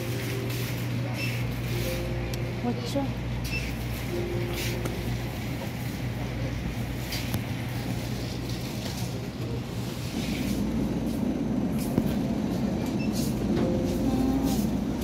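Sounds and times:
low rumble: 10.2 - 15.0.

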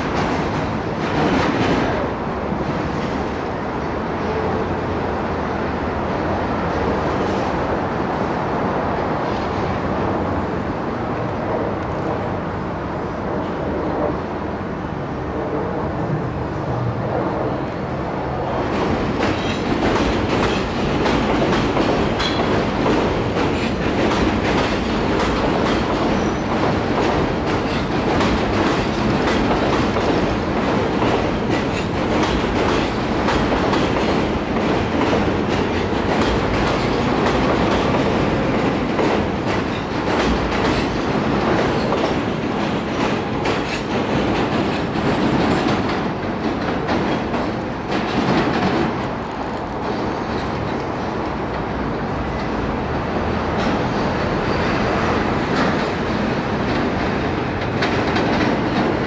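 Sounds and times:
train wheels clicking over rail joints: 0.0 - 4.4, 18.5 - 52.6, 53.4 - 59.0
train rumbling: 0.0 - 59.0.

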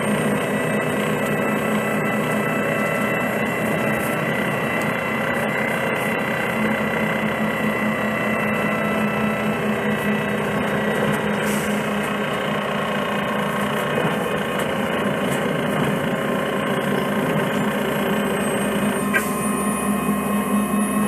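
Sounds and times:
bus engine idling: 0.0 - 21.0.

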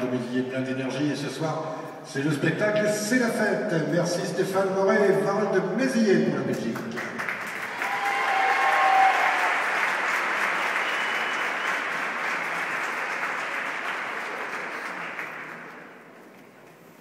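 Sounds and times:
audience applauding: 6.8 - 16.2.

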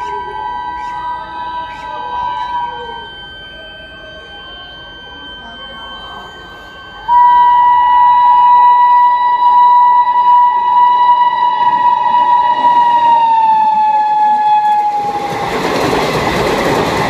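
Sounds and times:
faint high steady tones: 0.0 - 17.0
locomotive horn blast: 7.1 - 15.1.

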